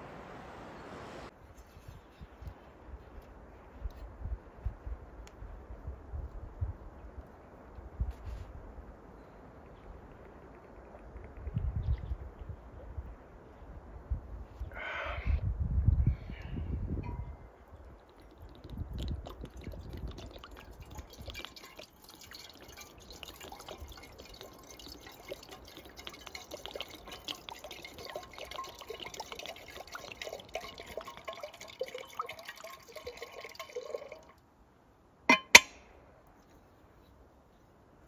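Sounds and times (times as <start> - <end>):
water pouring into a kettle: 17.8 - 34.4.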